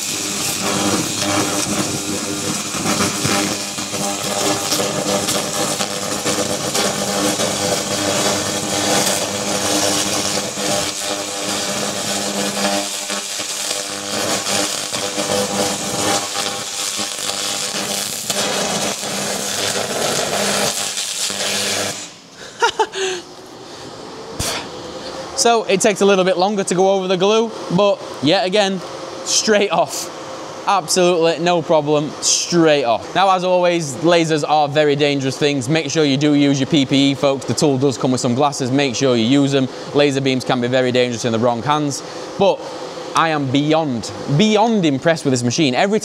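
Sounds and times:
laser cleaner crackling buzz: 0.0 - 22.8.

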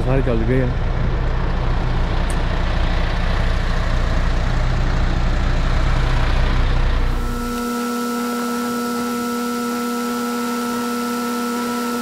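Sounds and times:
truck diesel engine idling: 0.0 - 7.7.

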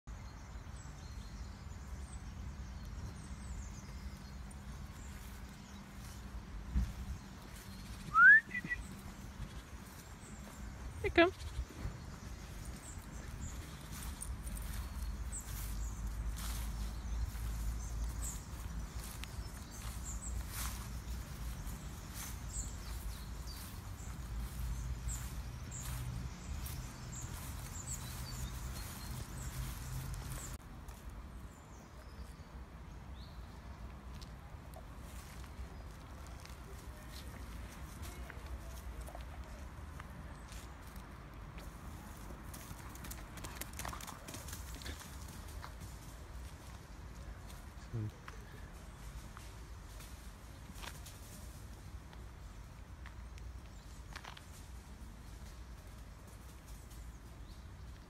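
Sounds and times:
faint high bird chirps: 7.8 - 9.6
high chirps: 8.0 - 8.8.

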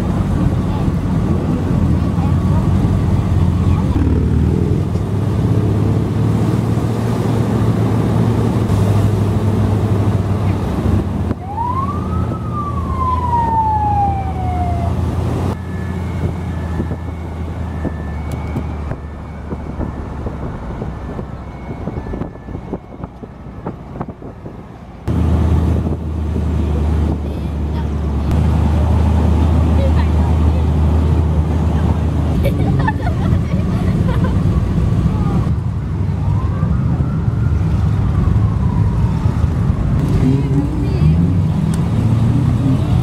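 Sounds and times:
siren-like wail: 11.3 - 25.0, 36.2 - 40.0.

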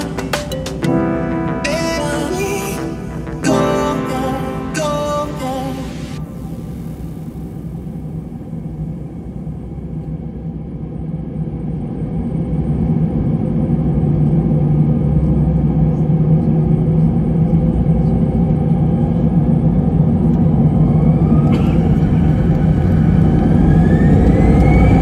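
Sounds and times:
jet engines spooling up: 20.2 - 25.0.

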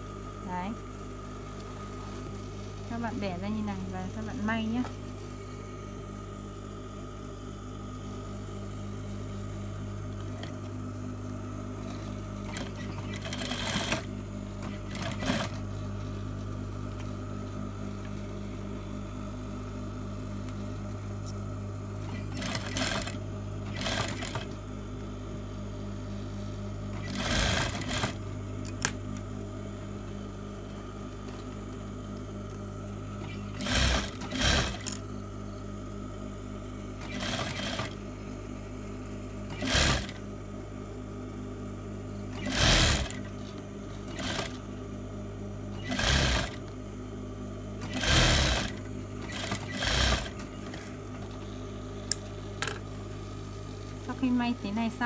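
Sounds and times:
steady low hum: 0.0 - 55.0
sewing machine stitching: 12.4 - 15.6, 22.0 - 24.6, 26.9 - 28.2, 33.3 - 35.0, 37.0 - 38.0, 39.5 - 40.2, 42.4 - 43.3, 44.1 - 44.6, 45.8 - 46.6, 47.8 - 50.8.

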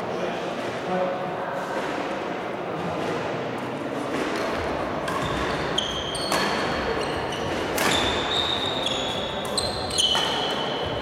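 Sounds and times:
racket hitting shuttlecock: 4.1 - 8.6
shoes squeaking on court: 5.1 - 11.0.

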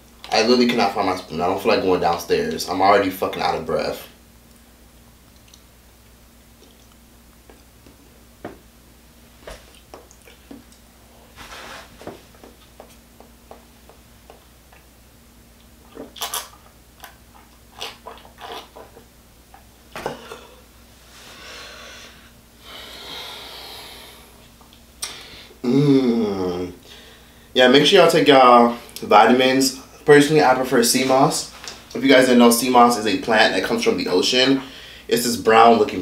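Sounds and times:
faint steady hum: 0.0 - 36.0
person chewing and swallowing: 6.6 - 8.0, 9.6 - 10.8, 15.6 - 20.6
sipping from a cup: 15.9 - 16.7, 17.8 - 19.0
breathy exhale: 20.1 - 24.4, 26.8 - 27.5, 34.7 - 35.1.

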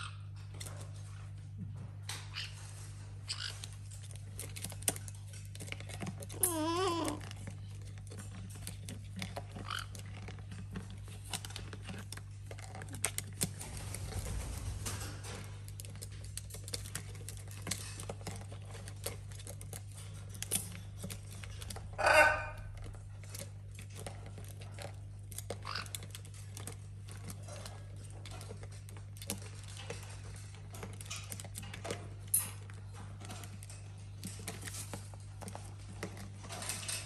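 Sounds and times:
steady low hum: 0.0 - 25.1
parrot squawk: 22.0 - 22.7.

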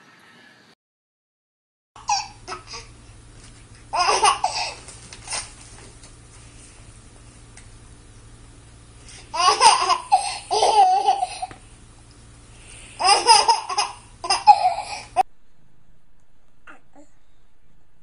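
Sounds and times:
baby laughing: 2.0 - 2.9, 3.9 - 4.8, 9.3 - 11.6, 13.0 - 15.2.

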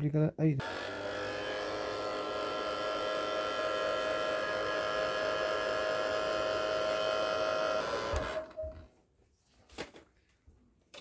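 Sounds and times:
hot-air blower running: 0.6 - 8.7.

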